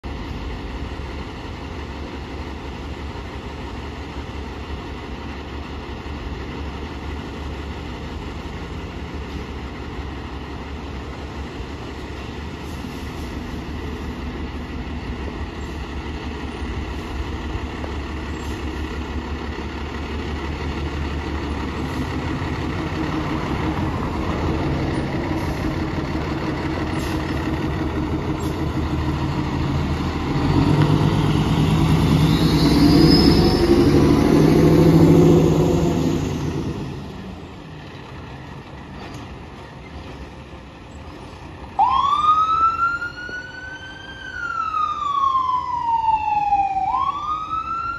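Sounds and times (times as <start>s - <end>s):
fire truck diesel engine: 0.0s - 47.9s
siren rising wail: 29.9s - 36.7s, 41.8s - 47.9s.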